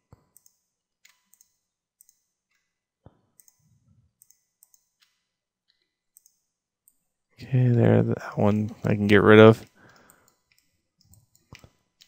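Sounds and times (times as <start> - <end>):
mouse and keyboard clicks: 0.3 - 2.6, 4.2 - 7.0.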